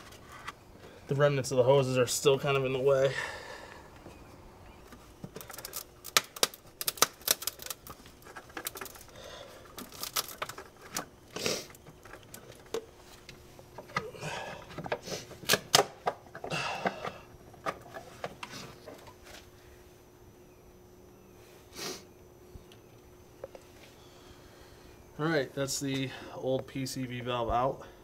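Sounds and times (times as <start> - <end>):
scraping and rustling of hoses: 6.8 - 14.0.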